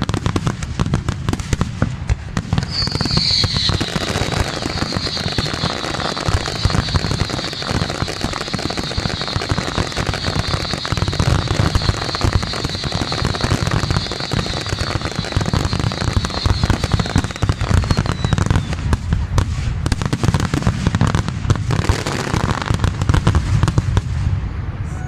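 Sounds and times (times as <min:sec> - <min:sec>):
firework crackle hiss: 0:00.0 - 0:24.4
firework shells bursting: 0:02.6 - 0:18.7.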